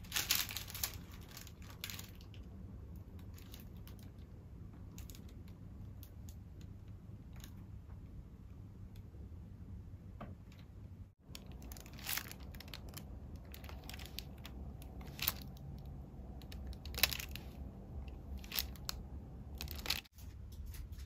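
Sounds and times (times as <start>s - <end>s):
plastic crinkling: 0.0s - 4.3s, 11.2s - 20.1s
faint low hum: 0.0s - 21.0s
sharp crackles: 11.2s - 20.1s.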